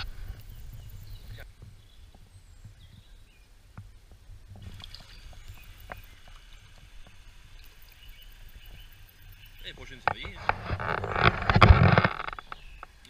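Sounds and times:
stream water running: 0.0s - 13.0s
small splashes and knocks: 3.8s - 13.0s
hiss of moving water: 4.6s - 10.0s.

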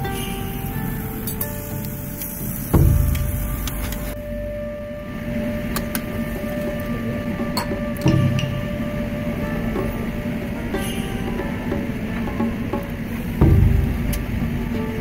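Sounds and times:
steady mechanical hum: 0.0s - 15.0s
metal tongs clicking on grill: 1.2s - 2.7s.

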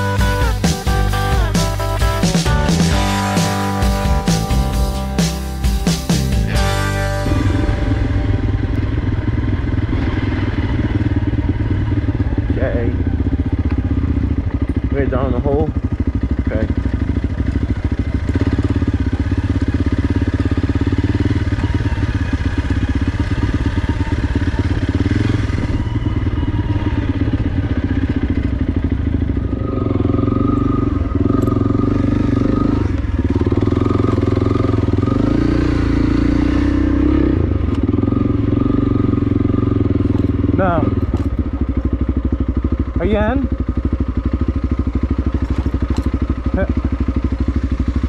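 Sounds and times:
motorcycle engine running: 0.0s - 48.0s.

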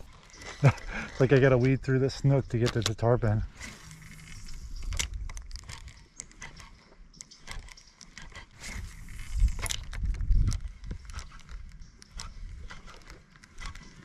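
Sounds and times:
fishing reel clicks and ticks: 1.3s - 14.0s.

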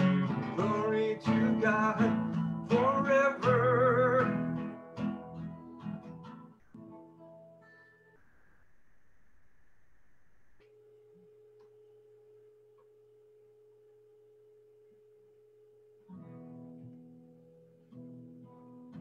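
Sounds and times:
acoustic guitar note and chords: 0.0s - 12.0s.

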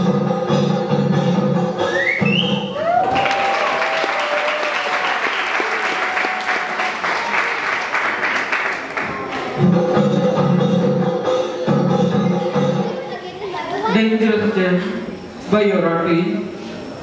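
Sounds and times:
audience applauding: 2.8s - 9.6s.

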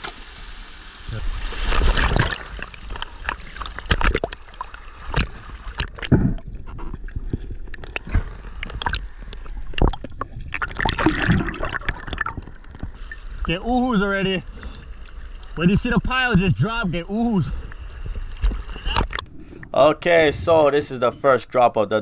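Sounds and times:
water sloshing and gurgling: 1.2s - 20.8s
sharp splashes and knocks: 1.4s - 13.5s.

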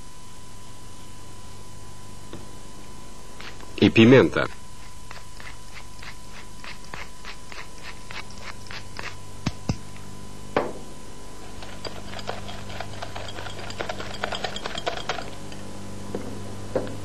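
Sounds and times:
whisk clicking against glass bowl: 11.5s - 15.6s.

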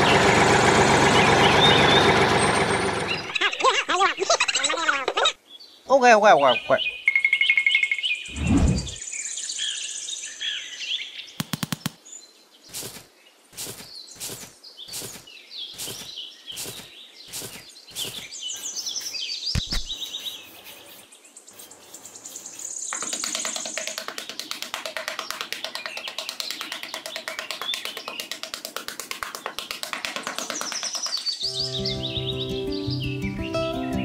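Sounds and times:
birds chirping: 3.0s - 34.0s
short evenly spaced strokes: 12.7s - 31.4s
light music: 31.5s - 34.0s.

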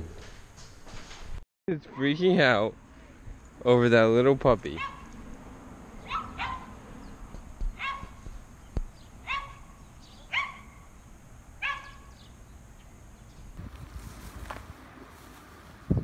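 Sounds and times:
dog yelping: 4.8s - 5.1s, 6.0s - 6.8s, 7.8s - 8.2s, 9.2s - 9.7s, 10.3s - 10.8s, 11.6s - 12.1s.

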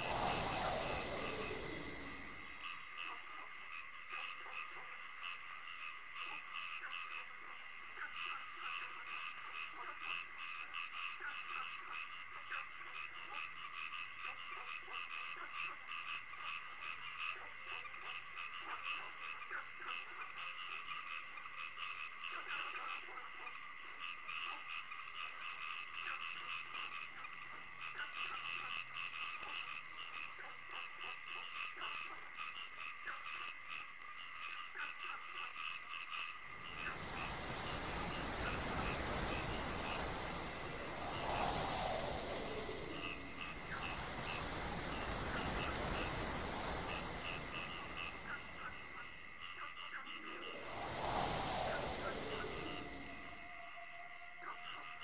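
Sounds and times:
loud even hiss: 0.0s - 2.8s, 36.5s - 53.8s
frogs croaking: 0.0s - 55.0s.

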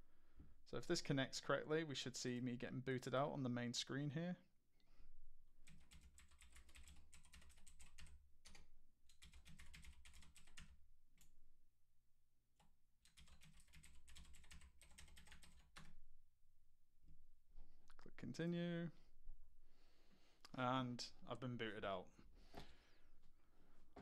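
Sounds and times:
faint keyboard typing: 5.6s - 11.4s, 12.6s - 16.0s.

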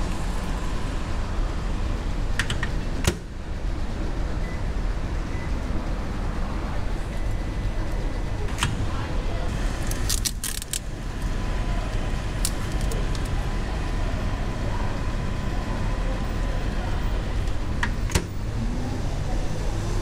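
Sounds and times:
plastic film crackling: 9.8s - 10.9s.

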